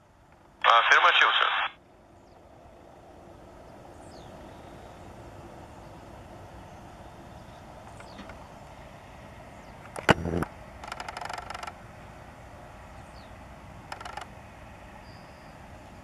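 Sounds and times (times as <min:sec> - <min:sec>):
jet engines rumbling: 0:00.5 - 0:10.7.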